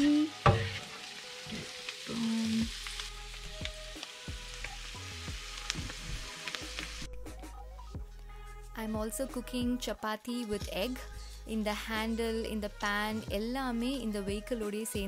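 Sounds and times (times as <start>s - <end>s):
food sizzling in a pan: 0.0s - 7.1s.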